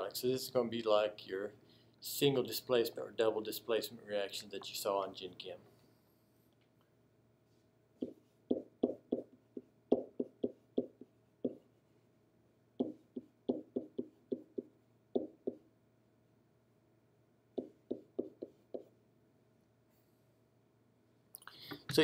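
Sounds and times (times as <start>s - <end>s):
pen tapping on whiteboard: 8.0s - 11.6s, 12.8s - 15.6s, 17.6s - 18.9s.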